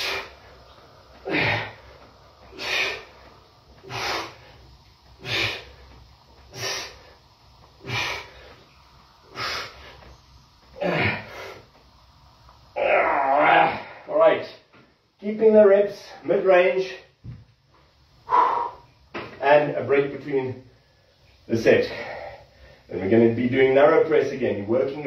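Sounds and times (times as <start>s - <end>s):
man exhaling forcefully: 0.0s - 0.5s, 1.2s - 4.6s, 5.2s - 5.9s, 6.5s - 7.1s, 7.8s - 8.6s, 9.2s - 10.0s, 18.3s - 18.9s.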